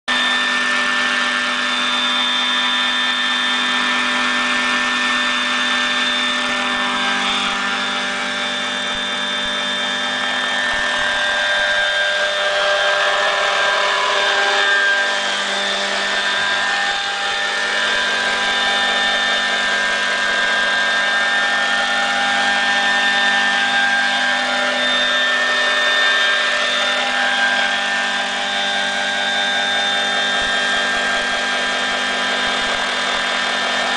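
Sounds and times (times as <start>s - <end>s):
electric motor whine: 0.1s - 33.9s
rotor blades whirring: 0.1s - 33.9s.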